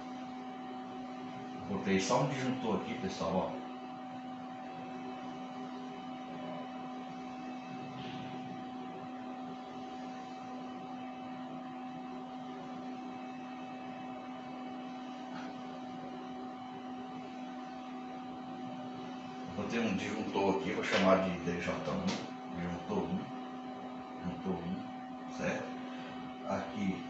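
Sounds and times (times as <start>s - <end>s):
steady two-tone hum: 0.0s - 27.0s.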